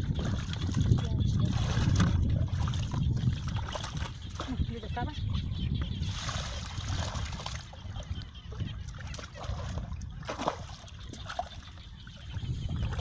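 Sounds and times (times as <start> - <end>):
water splashing from bucket: 0.0 - 4.7, 6.1 - 7.8, 8.9 - 11.6
small splashes and drips: 6.1 - 13.0.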